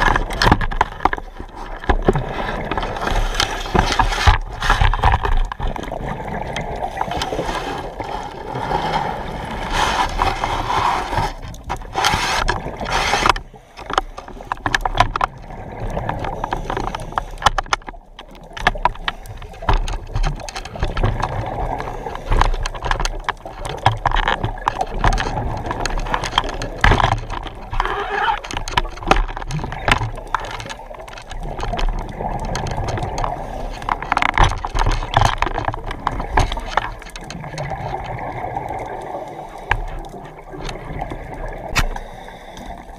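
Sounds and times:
diver breathing through regulator: 41.8 - 42.9.

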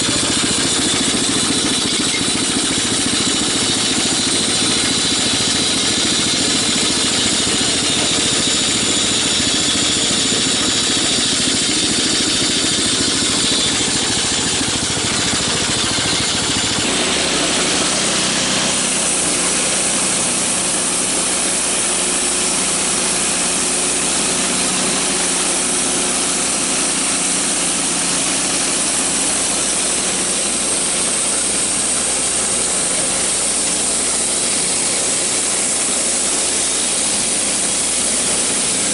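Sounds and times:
band saw blade cutting log: 0.0 - 38.9
engine running steadily: 0.0 - 38.9.

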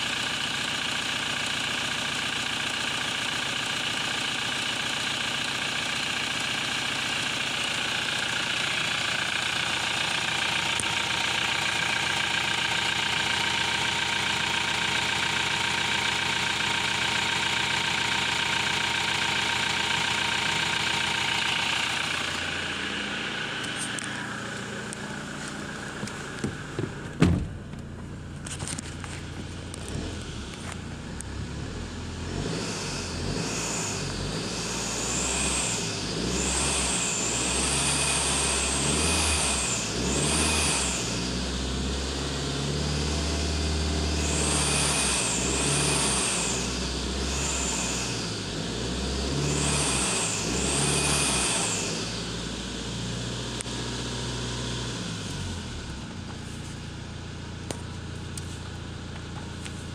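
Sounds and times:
diesel engine revving: 3.8 - 59.9
loud thump: 26.4 - 27.7.

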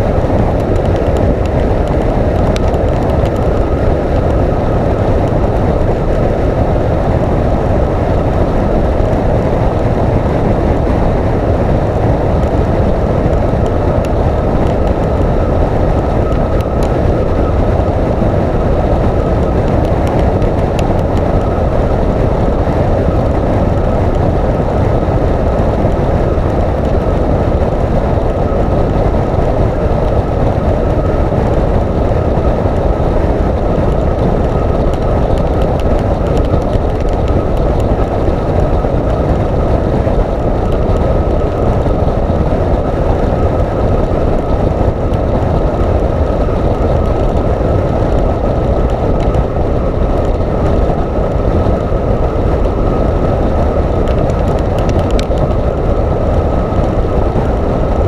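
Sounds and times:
motorcycle engine drone: 0.0 - 58.0
thin steady whine: 0.0 - 58.0
wind and road noise: 0.0 - 58.0.

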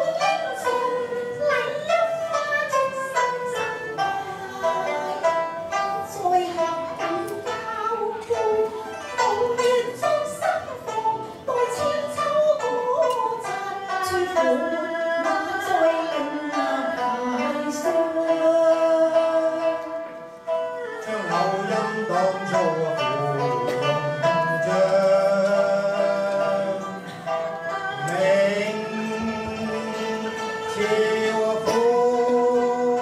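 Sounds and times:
plucked-string accompaniment: 0.0 - 33.0
woman singing: 11.5 - 19.6
man singing: 21.0 - 27.0, 28.0 - 33.0.

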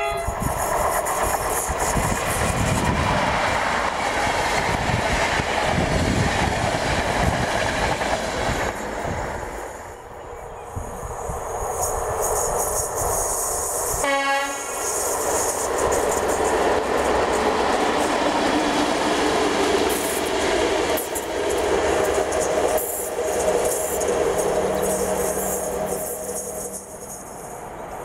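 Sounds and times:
locomotive horn blast: 0.0 - 0.4, 13.9 - 15.0
locomotive engine and wheel noise: 0.0 - 28.0.

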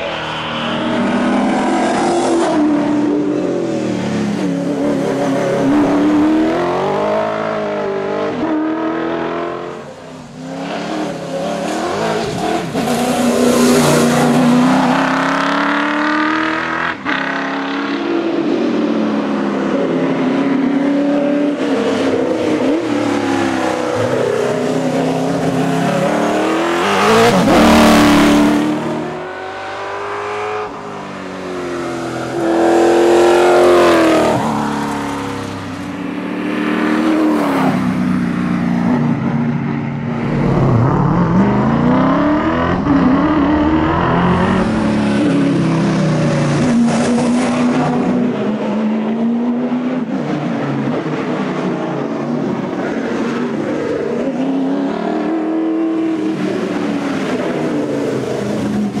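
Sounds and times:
rally car engine passing: 21.5 - 59.0.

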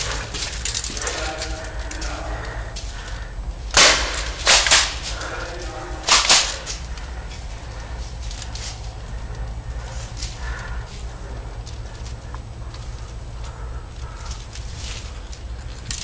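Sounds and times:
airsoft gun shots: 3.7 - 5.2, 6.0 - 6.7.

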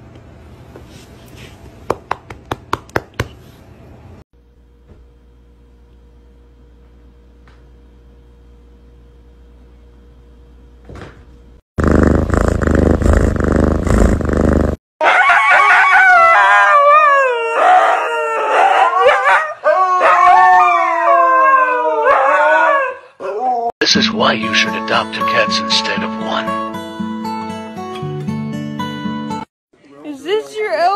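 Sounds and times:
huskies howling: 15.0 - 23.7.

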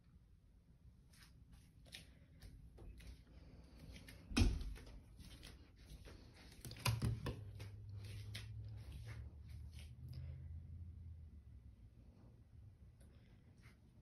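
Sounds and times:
footsteps: 1.1 - 10.2.

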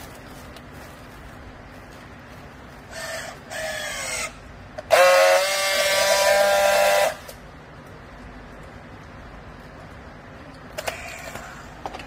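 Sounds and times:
strapping tool steady buzz: 2.9 - 7.4.

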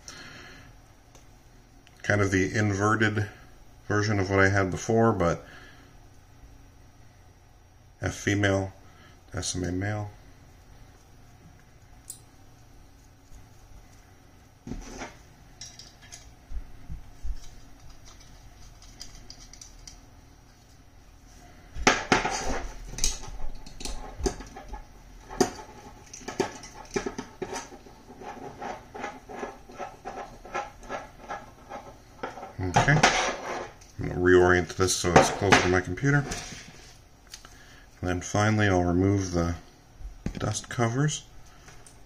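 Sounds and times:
metal connectors clicking and rattling: 15.6 - 16.4, 17.4 - 20.0.

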